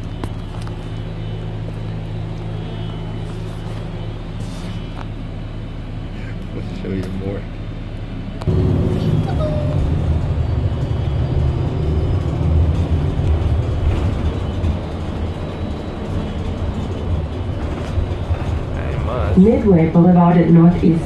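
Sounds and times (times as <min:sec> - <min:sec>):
bus engine and road noise: 0:00.0 - 0:21.0.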